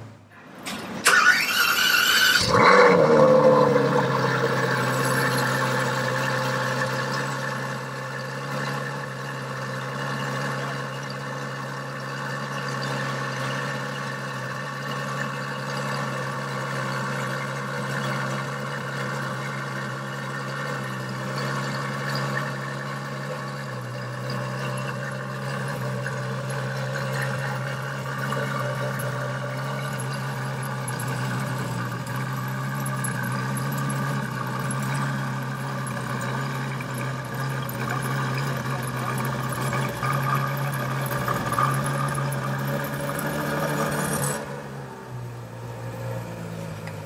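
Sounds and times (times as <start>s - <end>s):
car engine idling: 1.0s - 47.0s.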